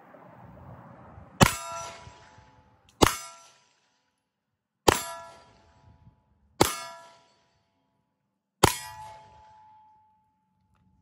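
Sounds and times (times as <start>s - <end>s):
steel target ringing: 1.4s - 4.1s, 4.8s - 6.0s, 8.6s - 10.4s.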